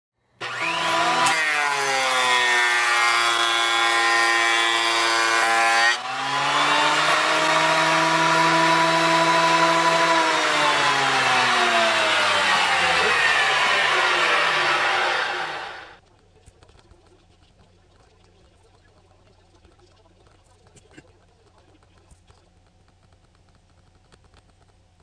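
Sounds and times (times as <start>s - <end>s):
hiss of cutting wood: 0.4s - 16.0s
power tool whining: 0.4s - 16.0s.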